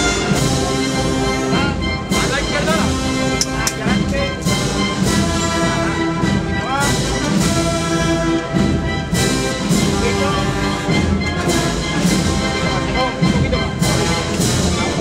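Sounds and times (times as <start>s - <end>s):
brass band playing a slow march: 0.0s - 15.0s
sharp percussion hits: 2.1s - 7.7s.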